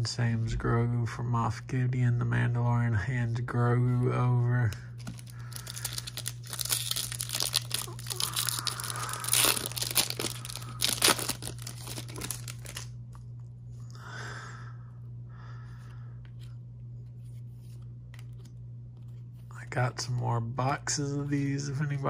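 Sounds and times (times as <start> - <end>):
low hum: 0.0 - 22.0
wrapper tearing and crinkling: 5.0 - 12.9.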